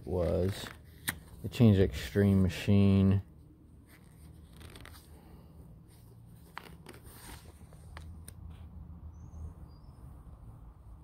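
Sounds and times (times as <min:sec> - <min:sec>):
paper rustling: 0:00.0 - 0:02.4, 0:03.8 - 0:08.6.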